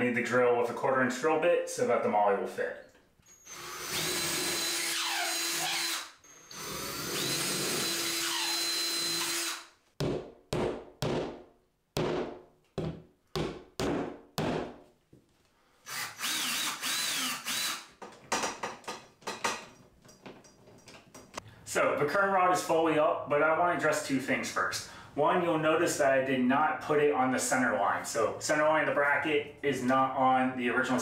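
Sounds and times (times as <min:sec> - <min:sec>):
power drill boring into drywall: 0:03.3 - 0:09.7, 0:15.8 - 0:17.9.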